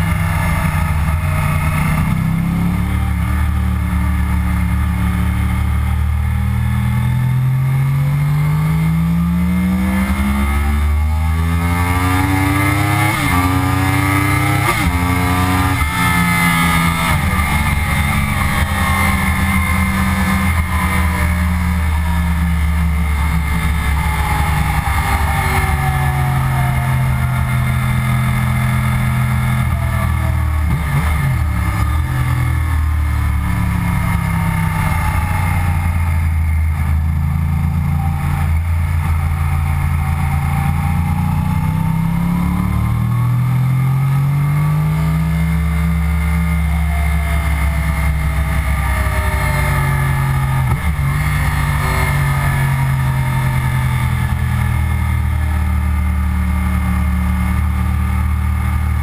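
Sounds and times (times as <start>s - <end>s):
motorcycle engine at speed: 0.0s - 59.0s.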